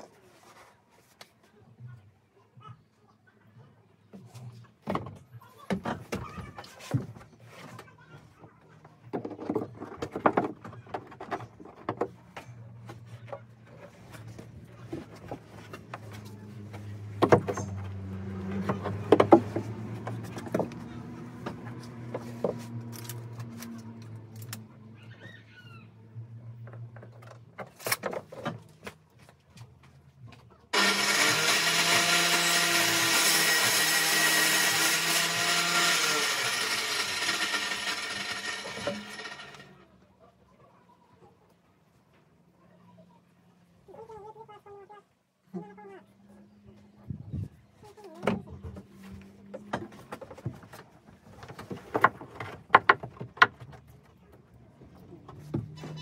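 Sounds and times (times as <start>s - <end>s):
knocks and thumps on plywood: 18.6s - 20.8s, 51.4s - 53.8s
loud machine noise: 30.8s - 39.8s.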